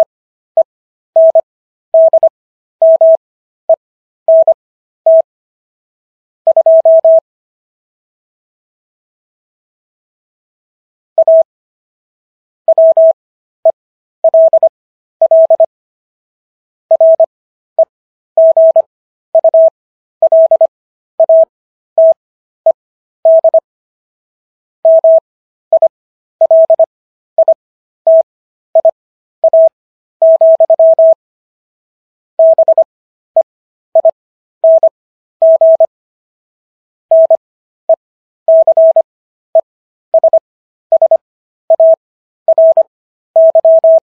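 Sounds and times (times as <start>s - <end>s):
morse code beeps: 1.2s - 1.4s, 2.0s - 3.2s, 4.3s - 5.3s, 6.5s - 7.2s, 11.2s - 11.5s, 12.7s - 13.2s, 14.2s - 15.7s, 16.9s - 17.3s, 18.4s - 22.2s, 23.3s - 23.6s, 24.9s - 31.2s, 32.4s - 35.9s, 37.1s - 44.0s.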